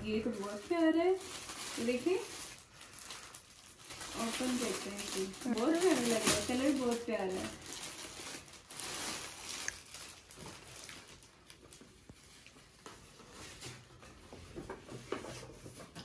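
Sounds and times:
gift packaging rustling: 0.0s - 14.2s.

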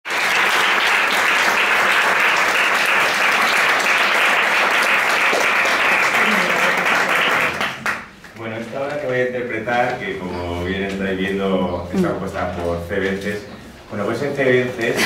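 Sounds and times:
audience clapping: 0.0s - 8.4s.

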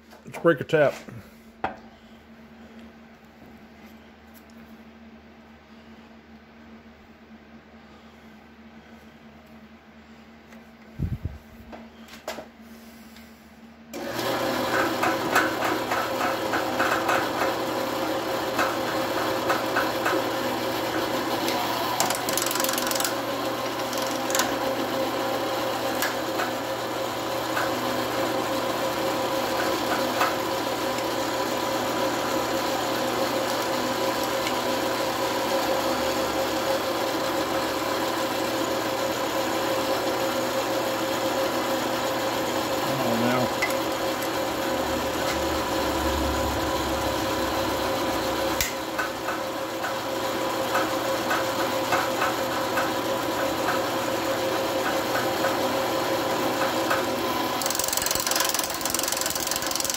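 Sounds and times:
drill press motor running: 13.9s - 59.9s.

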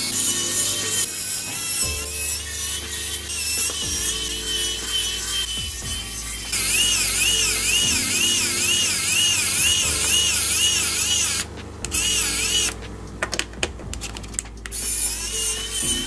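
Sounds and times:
electric screwdriver motor whining: 6.4s - 12.8s.

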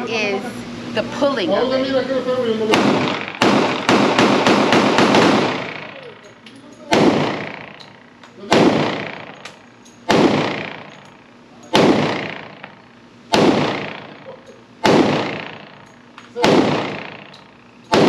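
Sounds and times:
pistol shots echoing: 2.7s - 6.2s, 6.9s - 11.0s, 11.7s - 15.8s, 16.4s - 18.0s.

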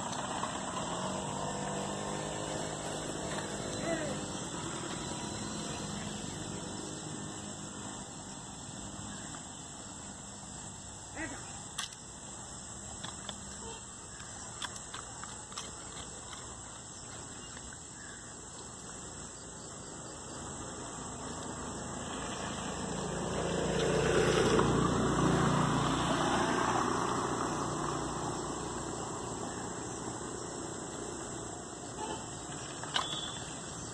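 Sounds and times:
motor vehicle passing: 0.0s - 11.5s, 20.2s - 33.9s
dog paws tapping and scratching: 14.5s - 17.8s.

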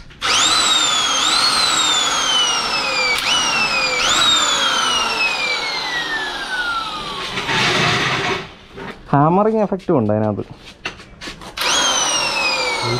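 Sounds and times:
electric impact wrench motor whine: 0.2s - 8.6s, 11.6s - 12.9s.

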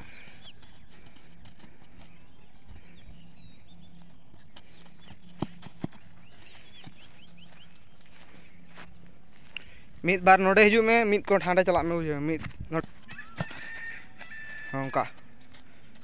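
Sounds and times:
high bird chirps: 6.2s - 8.0s, 12.9s - 15.0s.

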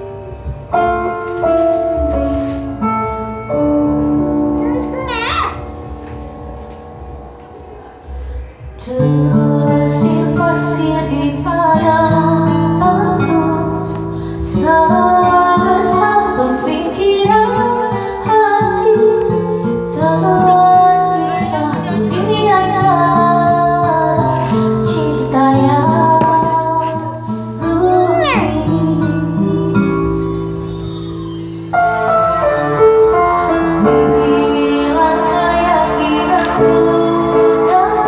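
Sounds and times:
karaoke backing track: 0.0s - 38.0s
woman singing into a microphone: 8.8s - 30.2s, 33.8s - 38.0s.

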